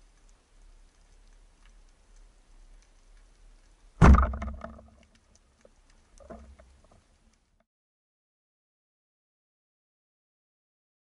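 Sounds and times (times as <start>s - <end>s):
underwater ticking and crackle: 0.0s - 7.6s
speargun firing underwater: 4.0s - 5.0s.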